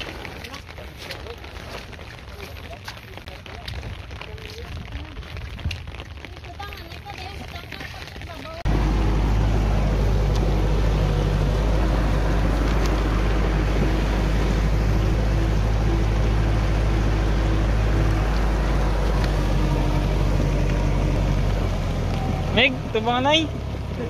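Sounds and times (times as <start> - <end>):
tractor diesel engine running: 8.6 - 24.0.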